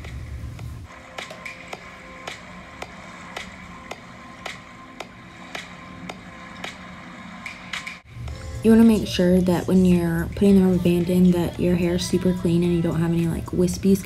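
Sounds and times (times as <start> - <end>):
soft background music: 0.0 - 14.0.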